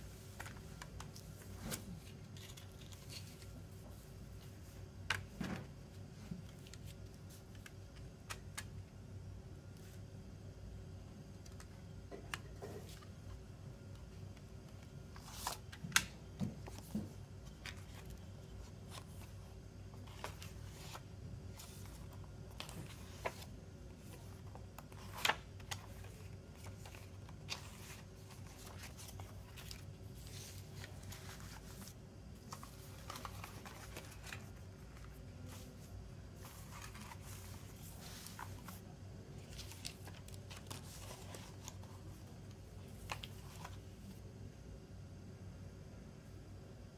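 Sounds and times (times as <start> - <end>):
faint steady hum: 0.0 - 46.9
paper rustling: 0.2 - 4.0, 16.4 - 42.2.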